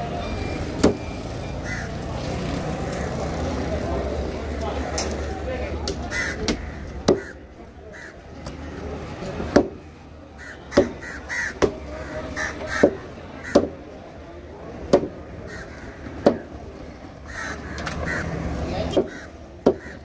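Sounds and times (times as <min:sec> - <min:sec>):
crows cawing: 0:01.6 - 0:02.0, 0:06.0 - 0:08.2, 0:10.4 - 0:13.7, 0:15.4 - 0:16.5, 0:17.2 - 0:20.0.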